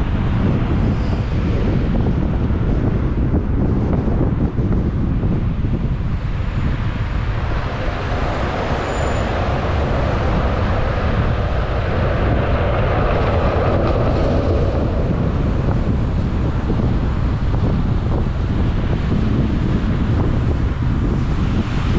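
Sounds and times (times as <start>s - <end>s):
car road and tyre noise: 0.0s - 21.9s
wind rumble on microphone: 0.0s - 21.9s
vehicle passing with rushing hiss: 6.2s - 17.2s.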